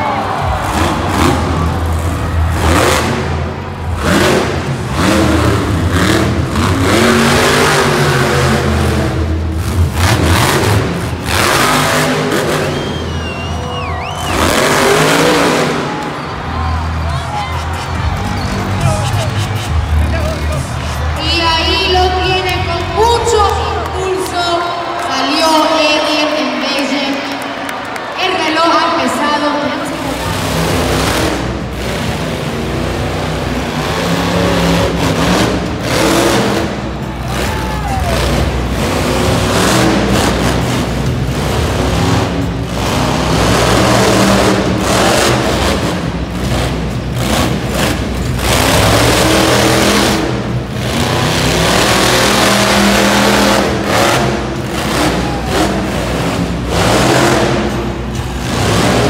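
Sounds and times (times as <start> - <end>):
truck engine revving: 0.0 - 59.0
music playing: 13.0 - 25.5.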